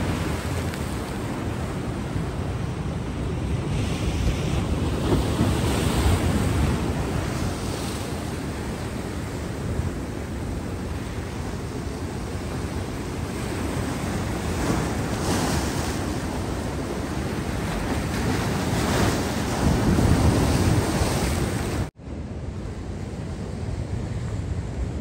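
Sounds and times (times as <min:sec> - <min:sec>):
wind on microphone: 0:00.0 - 0:25.0
surf breaking against rocks: 0:03.8 - 0:09.1, 0:13.2 - 0:21.9.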